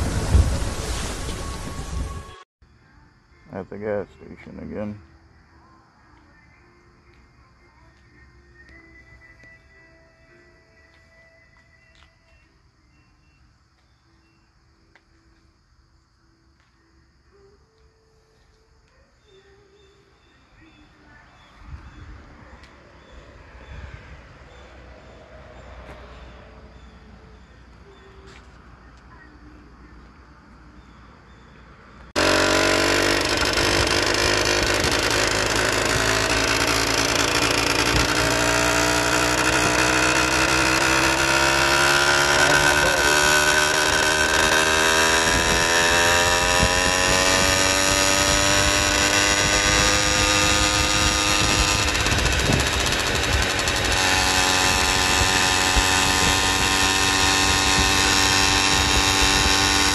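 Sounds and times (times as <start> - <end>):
small gas engine accelerating: 32.1 - 59.9.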